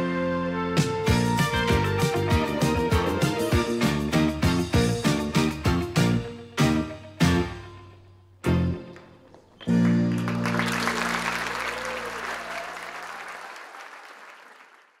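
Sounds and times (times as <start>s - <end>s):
electric guitar band chords: 0.8s - 7.8s
audience applause: 9.3s - 15.0s.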